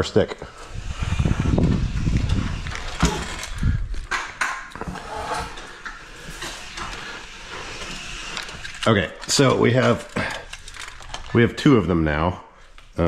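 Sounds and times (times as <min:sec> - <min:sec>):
low rumble: 0:00.6 - 0:04.1.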